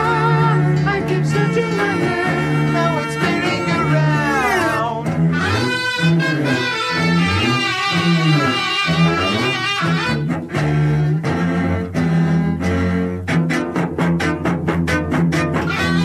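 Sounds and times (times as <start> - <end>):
bowed cellos and violins: 0.0 - 16.0.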